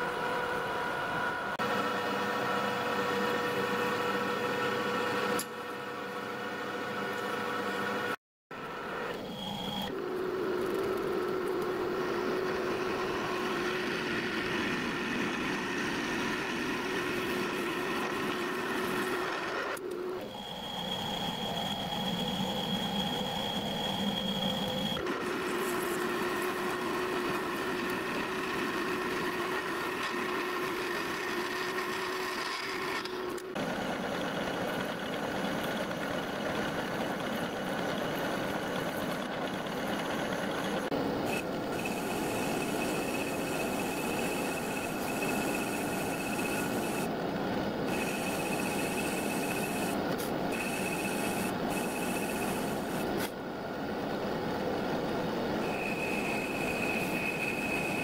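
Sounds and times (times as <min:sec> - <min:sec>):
metal lathe whine: 0:00.0 - 0:53.3, 0:54.2 - 0:58.0
high whistle: 0:20.2 - 0:25.0, 0:55.6 - 0:58.0.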